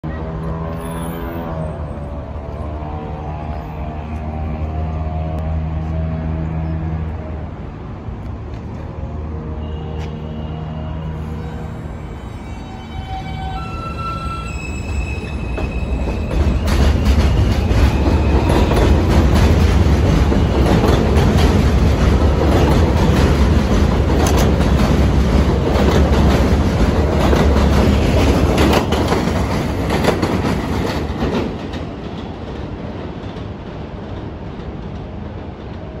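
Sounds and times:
train rumbling on elevated track: 0:00.0 - 0:36.0
wheels clattering over rail joints: 0:15.4 - 0:35.8.

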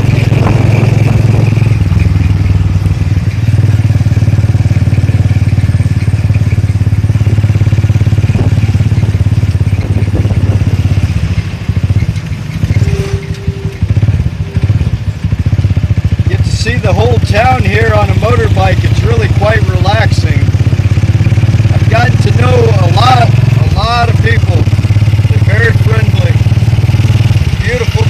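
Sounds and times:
motorcycle engine running: 0:00.0 - 0:28.0
short higher tones: 0:12.7 - 0:15.0.

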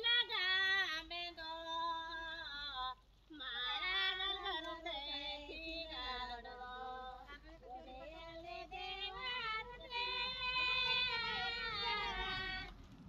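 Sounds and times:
women singing unaccompanied: 0:00.0 - 0:12.8.

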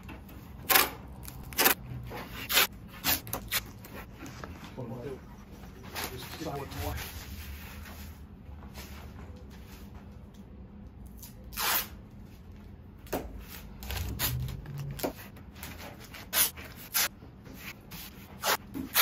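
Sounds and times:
masking tape ripping off roll: 0:00.6 - 0:03.9, 0:11.2 - 0:12.0, 0:13.8 - 0:15.2.

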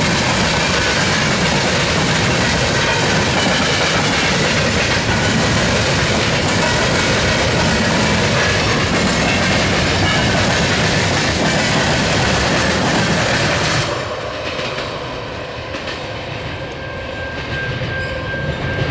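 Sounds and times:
wheels clicking over rail joints: 0:00.0 - 0:15.0
freight train rumbling past: 0:00.0 - 0:18.9.

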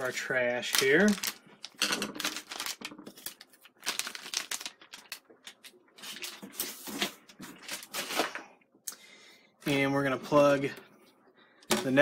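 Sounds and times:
plastic bags crinkling: 0:00.0 - 0:08.5.

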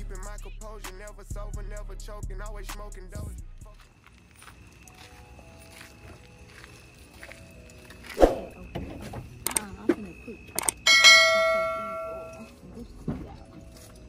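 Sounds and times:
sharp clicks: 0:09.4 - 0:09.7, 0:10.5 - 0:10.8
notification bell ding: 0:10.9 - 0:12.5.

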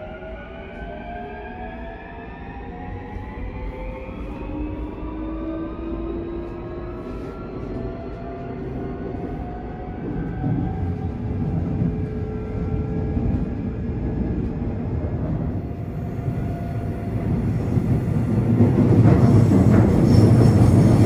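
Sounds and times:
wheels rumbling on rail: 0:04.2 - 0:21.0.

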